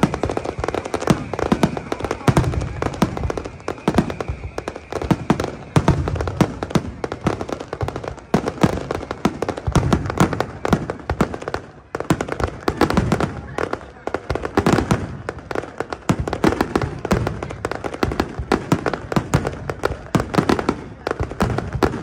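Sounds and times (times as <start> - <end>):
high whistle: 0.0 - 9.3
firework bursts and crackling: 0.0 - 22.0.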